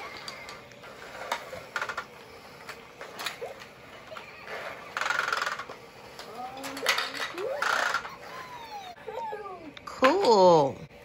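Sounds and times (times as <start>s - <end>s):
toy vacuum balls clattering: 2.7s - 8.2s.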